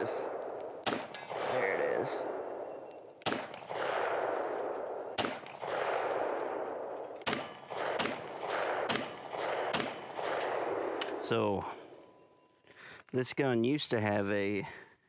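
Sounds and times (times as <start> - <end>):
pistol shots: 0.0 - 11.2
rolling echo: 0.0 - 12.8.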